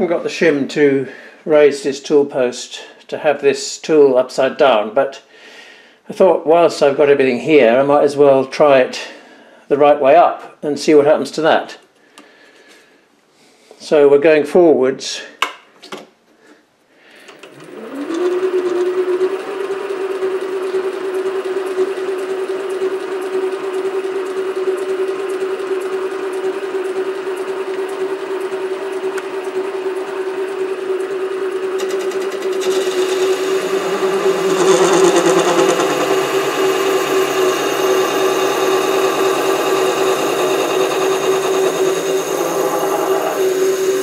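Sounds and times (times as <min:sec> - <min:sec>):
lathe motor whine: 0:17.5 - 0:44.0.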